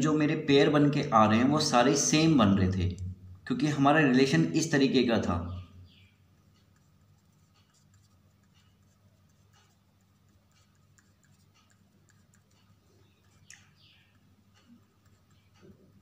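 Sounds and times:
pen writing on paper: 6.8 - 13.5, 15.0 - 16.0.

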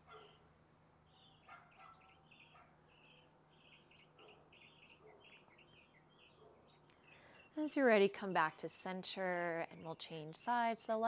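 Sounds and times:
small bird chirping: 0.1 - 7.7.

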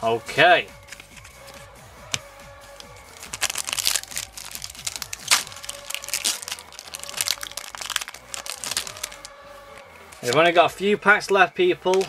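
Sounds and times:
foil wrapper crinkling: 3.1 - 9.3.

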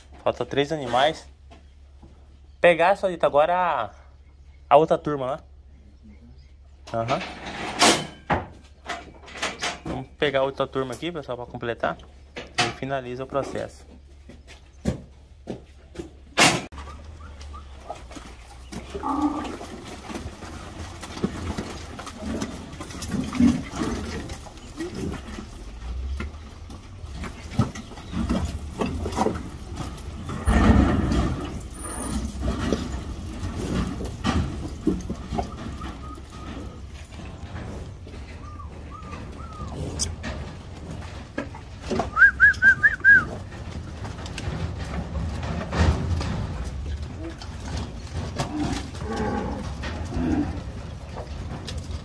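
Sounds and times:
gates clanking: 6.8 - 11.3, 16.0 - 52.0
cattle hooves knocking: 6.8 - 52.0.

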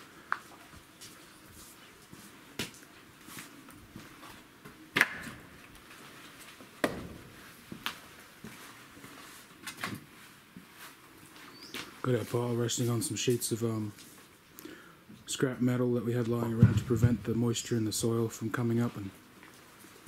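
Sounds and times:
firewood knocking together: 6.8 - 7.4.

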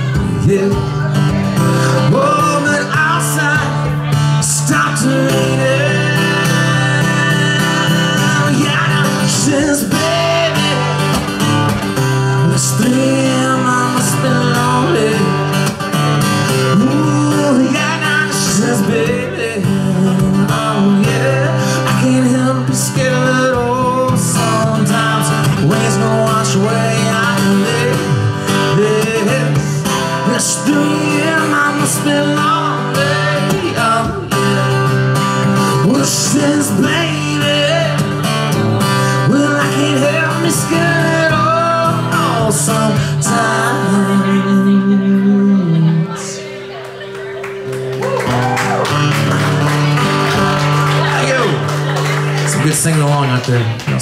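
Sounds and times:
man singing through a pa: 0.0 - 11.0, 12.4 - 15.6, 16.7 - 34.9, 35.6 - 38.1, 39.1 - 46.2
acoustic guitar: 0.0 - 54.0.

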